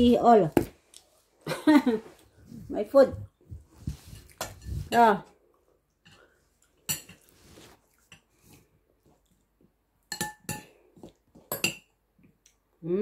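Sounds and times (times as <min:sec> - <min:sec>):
fork clinking on ceramic plate: 0:10.1 - 0:10.7.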